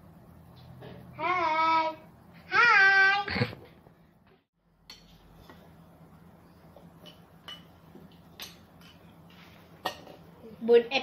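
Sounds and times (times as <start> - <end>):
cutlery clinking on plates: 6.9 - 10.3.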